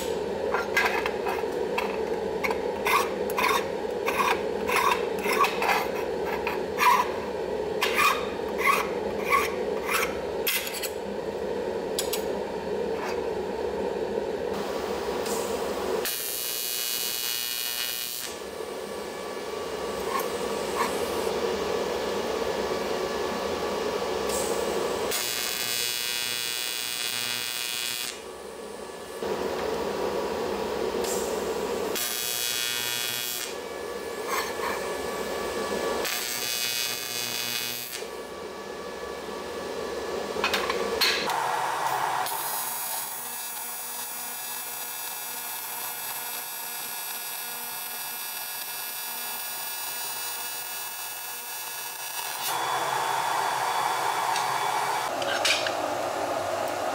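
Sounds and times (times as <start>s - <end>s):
welding arc buzzing: 0.0s - 10.7s, 14.5s - 19.2s, 24.3s - 30.0s, 31.0s - 38.2s, 41.2s - 55.8s
steady hum: 0.0s - 16.1s.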